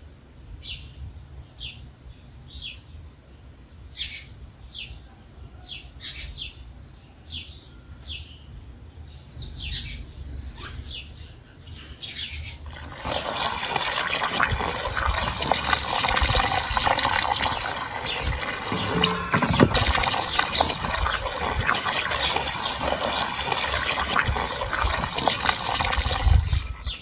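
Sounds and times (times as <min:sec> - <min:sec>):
water pouring into metal basin: 0:12.6 - 0:27.0
hand washing in splashing water: 0:12.7 - 0:26.8.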